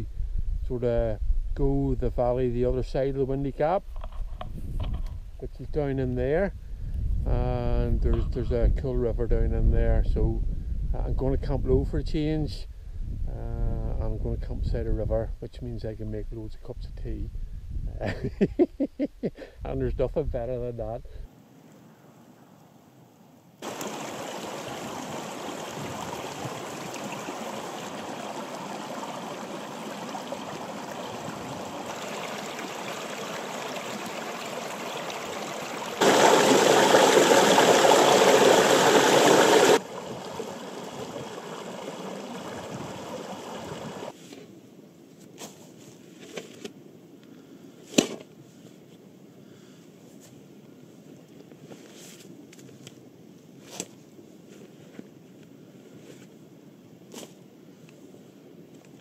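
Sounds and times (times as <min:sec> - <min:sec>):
stream rushing over rocks: 0:23.6 - 0:44.1.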